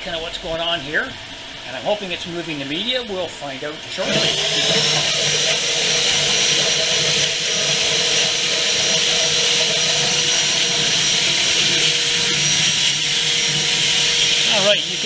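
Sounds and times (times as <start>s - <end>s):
shop vacuum motor whining: 3.6s - 15.0s.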